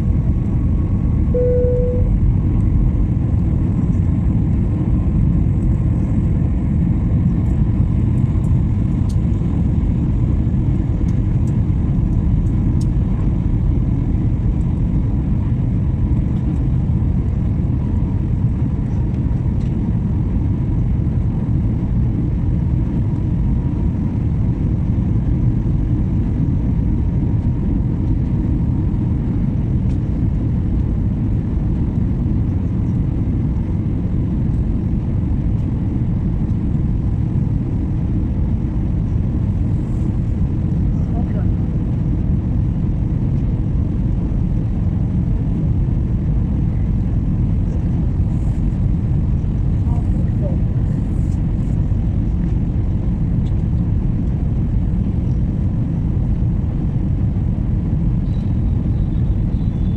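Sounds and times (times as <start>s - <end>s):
faint steady hum: 1.2s - 2.7s
airflow over fuselage: 24.0s - 59.9s.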